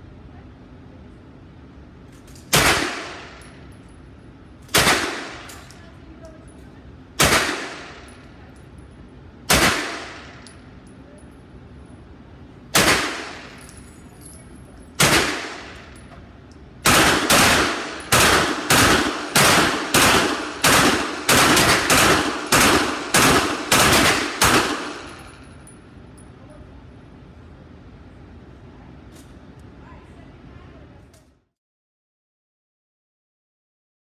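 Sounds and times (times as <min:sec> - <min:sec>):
gunshots in indoor range: 0:02.4 - 0:03.5, 0:09.5 - 0:10.6, 0:15.0 - 0:16.0, 0:16.8 - 0:25.4.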